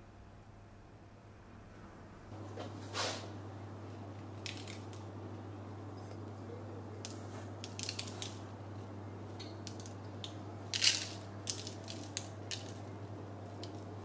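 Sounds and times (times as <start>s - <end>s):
low steady hum: 0.0s - 14.0s
seeds sprinkled ticks and rustles: 4.4s - 5.0s, 7.0s - 8.9s, 9.6s - 14.0s.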